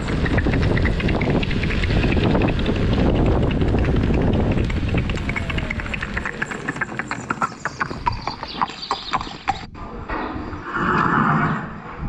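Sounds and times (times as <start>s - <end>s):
synthetic horse-hoof clip-clop: 0.0s - 9.7s.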